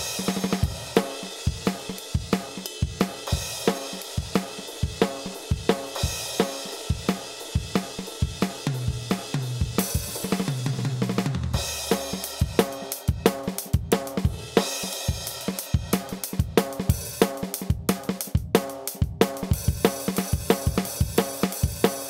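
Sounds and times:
fast drum kit beat: 0:00.0 - 0:22.0.

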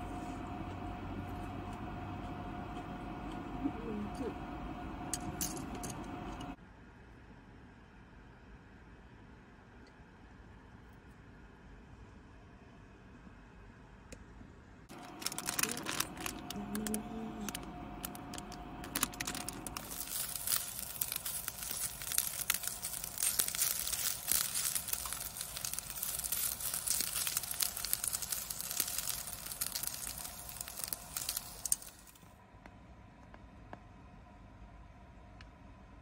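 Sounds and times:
patties sizzling in a pot: 0:14.9 - 0:32.3.

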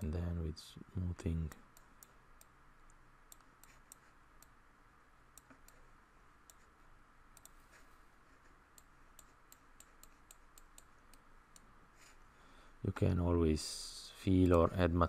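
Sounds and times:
computer mouse clicks: 0:01.5 - 0:04.6, 0:05.3 - 0:06.7, 0:07.4 - 0:07.9, 0:08.7 - 0:12.2.

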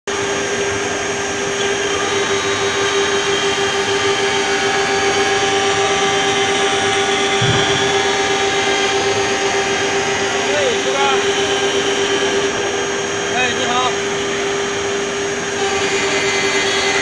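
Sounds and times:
engraving spindle whine: 0:00.1 - 0:17.0.

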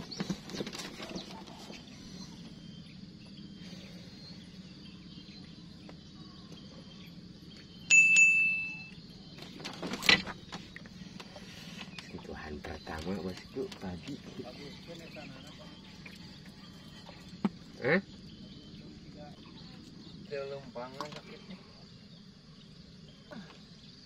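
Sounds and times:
low outdoor hum: 0:00.0 - 0:24.0
bright bell ding: 0:07.9 - 0:08.9.

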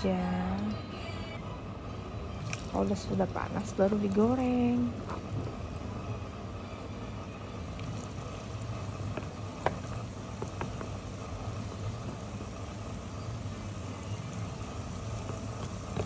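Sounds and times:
low steady hum: 0:00.0 - 0:16.0
chicken deep-frying in oil: 0:02.2 - 0:16.0
oil popping: 0:02.4 - 0:06.0, 0:06.8 - 0:16.0.

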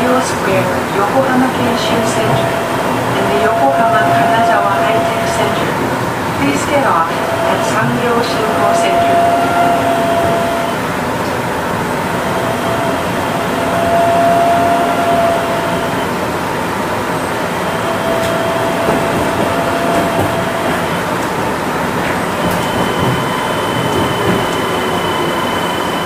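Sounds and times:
train running noise: 0:00.0 - 0:26.0
thin even whine: 0:00.9 - 0:16.2.

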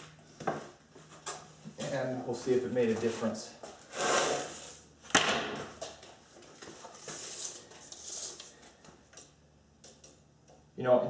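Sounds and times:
tape measure blade scraping: 0:03.9 - 0:04.8.

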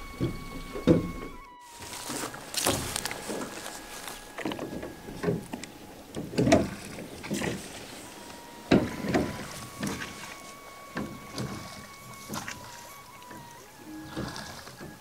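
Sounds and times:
oar knocking in rowlock: 0:00.0 - 0:01.4, 0:04.4 - 0:05.6, 0:06.2 - 0:07.7, 0:08.7 - 0:10.3
oar splashing in water: 0:00.0 - 0:15.0.

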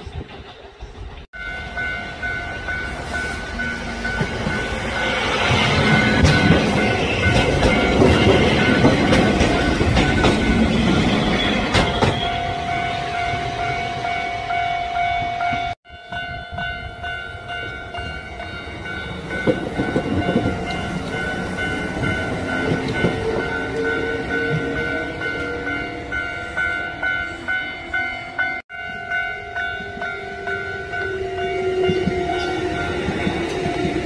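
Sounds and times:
train wheels clattering: 0:00.0 - 0:12.4, 0:19.0 - 0:25.6
level crossing bell ringing: 0:01.4 - 0:11.7.

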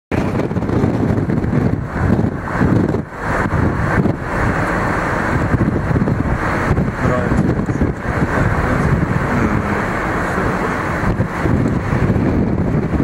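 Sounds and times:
car engine and tyre noise: 0:00.1 - 0:13.0
wind rumbling on microphone: 0:00.1 - 0:13.0.

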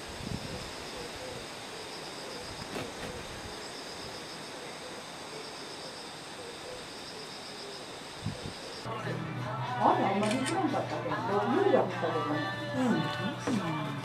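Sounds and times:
constant hiss: 0:00.0 - 0:08.9
insects trilling: 0:00.0 - 0:08.9.

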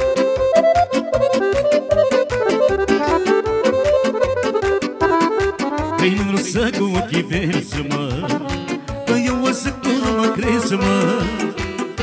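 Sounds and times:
folk band with accordion: 0:00.0 - 0:07.2.

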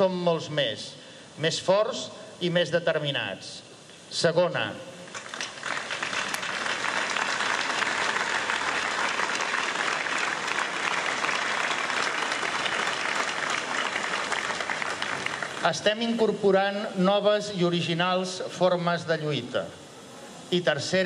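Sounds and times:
crowd applauding: 0:05.1 - 0:16.1.

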